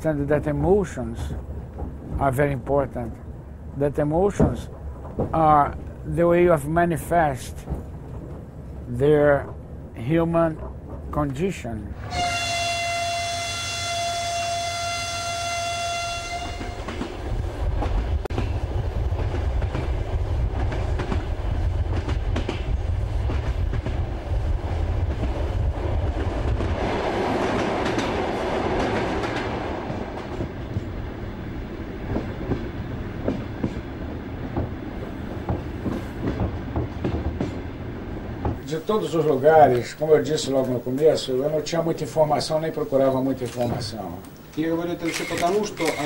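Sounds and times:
train rumbling with clicking wheels: 0.0s - 42.7s
train horn: 12.0s - 17.0s.

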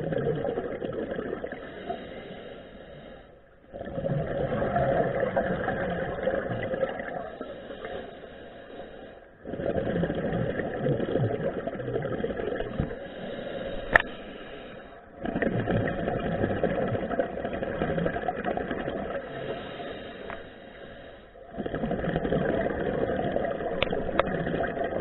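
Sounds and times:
scuba regulator bubbling underwater: 0.0s - 2.1s, 3.6s - 8.1s, 8.8s - 20.0s, 21.4s - 25.0s
sharp click: 13.9s - 14.1s.

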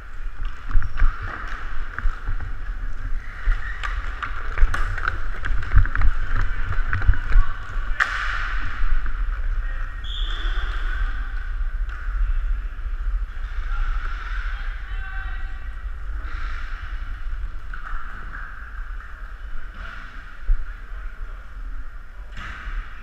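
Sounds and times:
skating rush and rumble: 0.0s - 23.0s
sharp crack: 3.8s - 9.2s.

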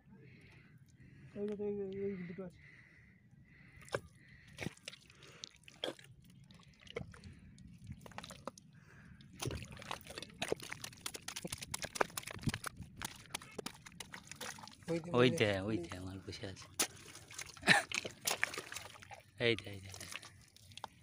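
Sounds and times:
wet mud squelching: 3.6s - 21.0s.

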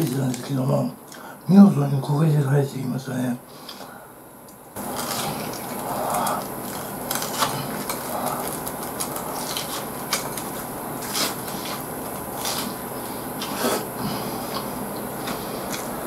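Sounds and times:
crunchy chewing of fried shrimp: 4.8s - 16.0s.

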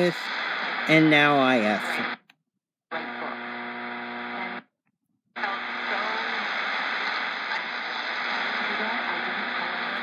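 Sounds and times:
hissy radio signal: 0.0s - 2.2s, 2.9s - 4.6s, 5.4s - 10.0s
hum with static: 0.0s - 2.3s, 2.9s - 4.7s, 5.4s - 10.0s
faint voice on radio: 2.9s - 4.5s, 5.4s - 10.0s.

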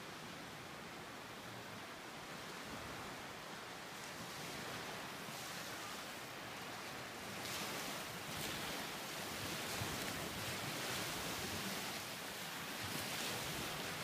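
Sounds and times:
waves washing onto pebble beach: 6.9s - 14.0s.

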